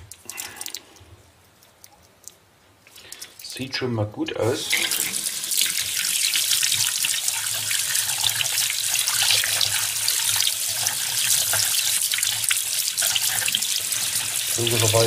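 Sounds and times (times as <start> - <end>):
tap water splashing into basin: 4.6 - 15.0.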